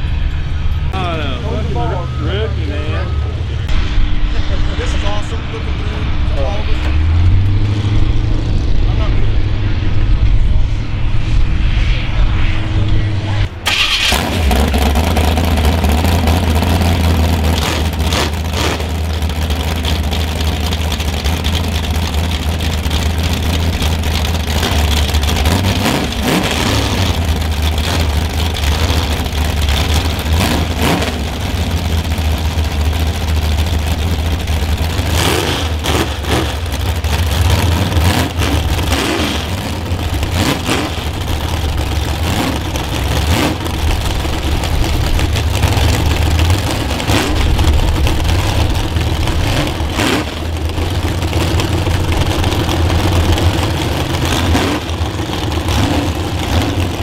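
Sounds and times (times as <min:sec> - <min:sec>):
car engine idling: 0:13.5 - 0:57.0.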